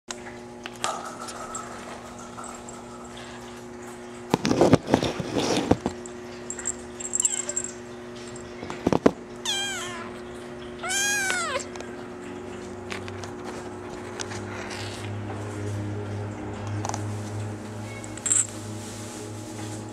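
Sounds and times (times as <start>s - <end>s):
faint steady hum: 0.1s - 19.9s
kitten meowing: 9.4s - 10.2s, 10.8s - 11.7s.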